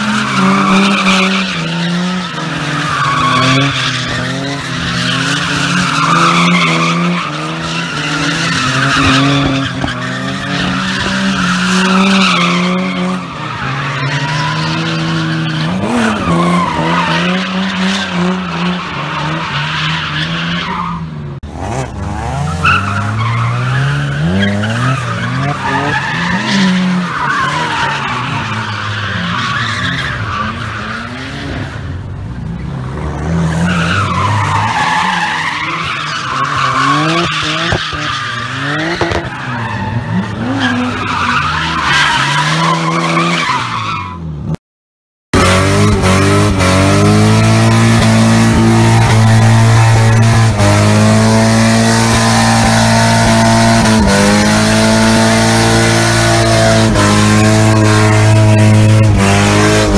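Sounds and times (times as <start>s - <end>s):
tyres screeching: 0.0s - 21.0s, 45.4s - 59.9s
car engine revving hard: 45.4s - 59.9s.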